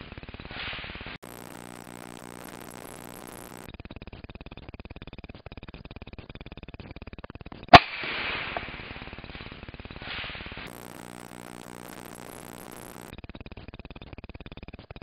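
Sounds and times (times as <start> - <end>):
rifle shot: 7.7 - 8.9.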